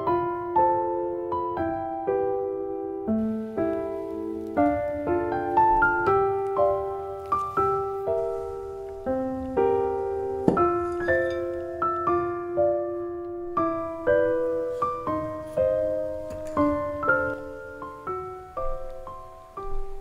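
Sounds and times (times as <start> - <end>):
piano notes and chords: 0.0 - 20.0.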